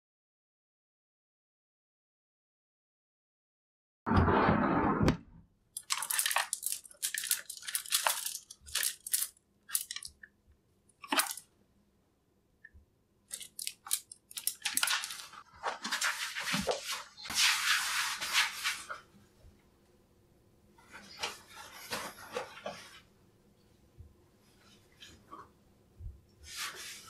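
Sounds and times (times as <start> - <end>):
plastic hangers scraping and clacking: 5.8 - 10.1, 13.3 - 15.4
clothes rustling: 20.8 - 23.1.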